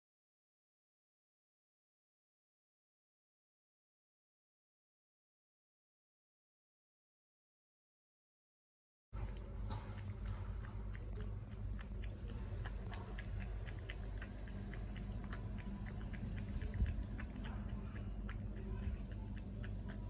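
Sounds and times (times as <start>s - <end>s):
small wet clicks: 9.2s - 20.0s
steady low rumble: 9.2s - 20.0s.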